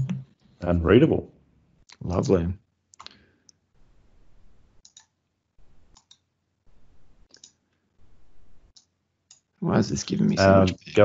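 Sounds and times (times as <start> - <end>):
low background noise: 0.0 - 11.0
computer mouse clicks: 4.8 - 5.1, 5.9 - 6.2, 7.2 - 7.6, 8.7 - 9.5.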